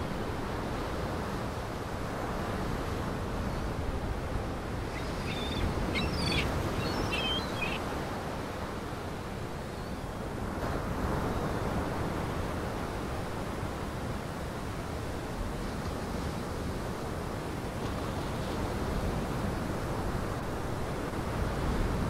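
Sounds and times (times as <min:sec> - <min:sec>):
short bird calls: 0:04.9 - 0:07.8.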